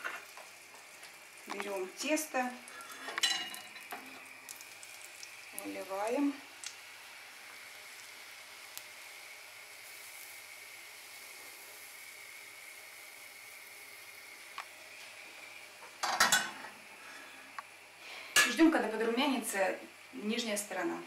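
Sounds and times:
pancake batter sizzling in a pan: 0:00.0 - 0:21.0
metal cookware clatter: 0:03.2 - 0:03.9, 0:16.0 - 0:16.6.

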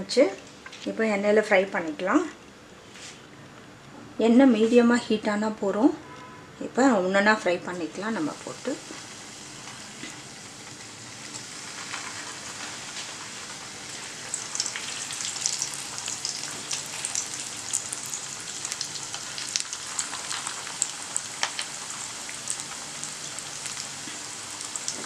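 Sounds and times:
food deep-frying in oil: 0:07.8 - 0:25.0.

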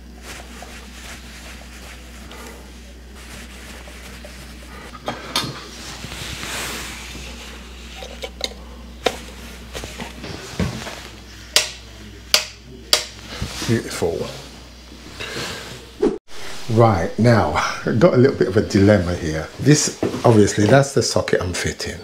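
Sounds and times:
scraping rustle: 0:00.0 - 0:04.9, 0:05.6 - 0:08.2.

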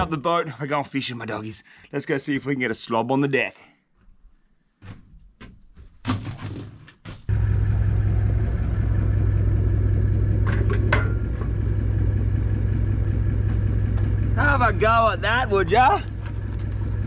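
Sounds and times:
car engine running: 0:07.3 - 0:17.0.

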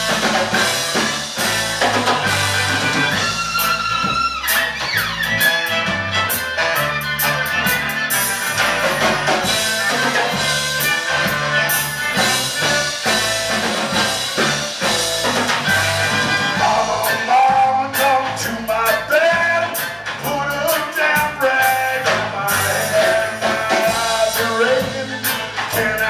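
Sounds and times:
saxophone: 0:00.0 - 0:17.2
drum kit: 0:00.0 - 0:26.0
electric guitars: 0:00.0 - 0:26.0
fiddle: 0:02.5 - 0:08.6.

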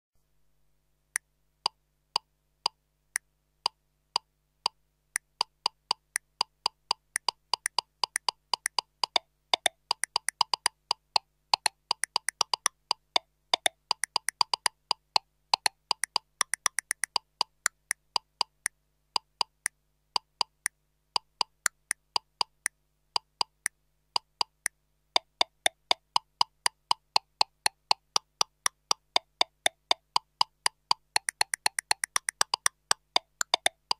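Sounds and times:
metronome clicking: 0:04.2 - 0:33.9.

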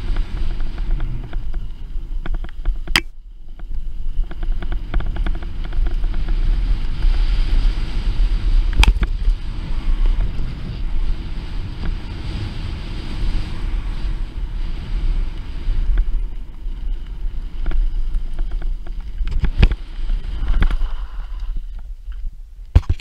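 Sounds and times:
tyres rolling on dirt: 0:00.0 - 0:22.2
wind buffeting microphone: 0:00.0 - 0:23.0
bike clicks and knocks: 0:00.1 - 0:07.2, 0:08.7 - 0:09.3, 0:15.9 - 0:20.9.

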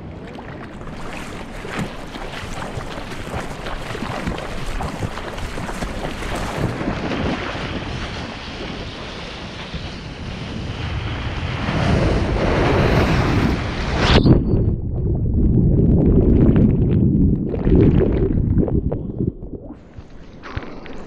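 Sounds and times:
water splashing and rushing: 0:00.0 - 0:14.0
wind buffeting microphone: 0:00.0 - 0:20.6.

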